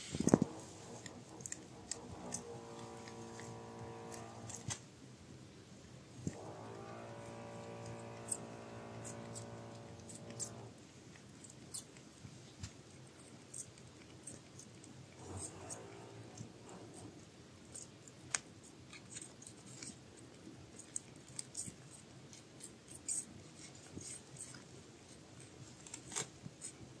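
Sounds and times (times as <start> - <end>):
kittens suckling: 0.0 - 4.8, 6.4 - 12.0.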